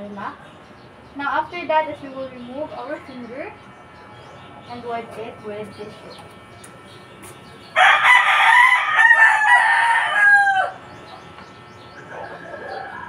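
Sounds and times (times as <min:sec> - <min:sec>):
rooster crowing: 0:07.8 - 0:11.0, 0:12.0 - 0:13.0.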